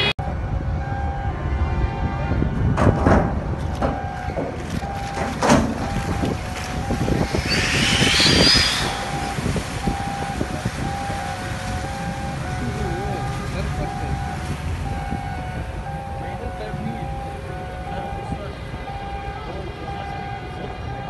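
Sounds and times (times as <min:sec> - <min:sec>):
heavy machinery rumbling: 0:00.0 - 0:20.9
rushing noise with high squeal: 0:03.8 - 0:21.0
beeping tone: 0:05.8 - 0:11.2, 0:11.8 - 0:19.3.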